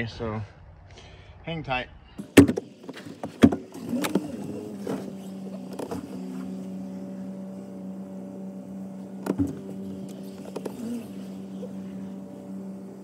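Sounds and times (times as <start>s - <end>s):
car engine starting and humming: 2.2s - 13.0s
thump: 2.4s - 2.6s, 3.2s - 3.7s, 9.2s - 9.7s.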